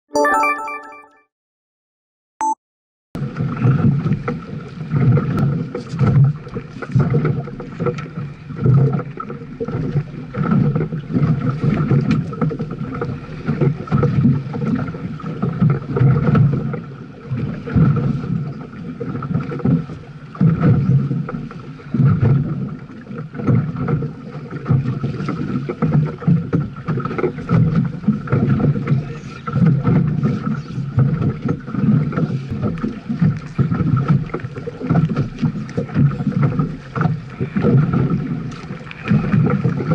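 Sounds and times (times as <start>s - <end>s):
water slapping against hull: 3.2s - 39.9s.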